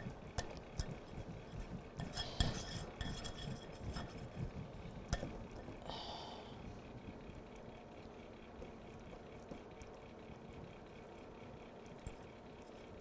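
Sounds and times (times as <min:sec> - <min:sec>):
batter stirred in a bowl: 0:00.4 - 0:04.6.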